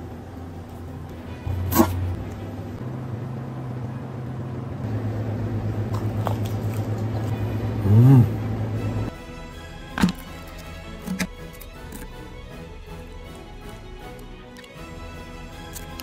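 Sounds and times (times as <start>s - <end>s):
chewing: 5.9s - 7.3s
man humming: 7.8s - 8.5s.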